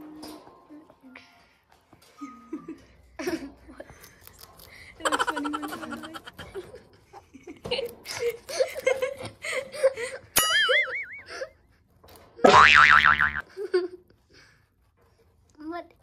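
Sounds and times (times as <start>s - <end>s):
person giggling and laughing: 5.0s - 11.6s.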